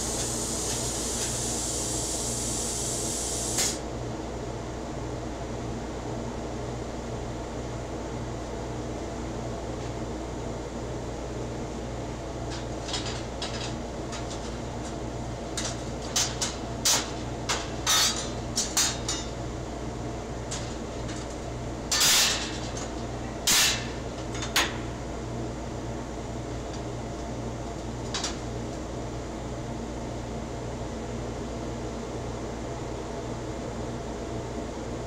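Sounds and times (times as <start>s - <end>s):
steady machine hum: 0.0s - 35.0s
steel pieces clanking on metal slats: 17.6s - 19.3s, 21.9s - 24.6s.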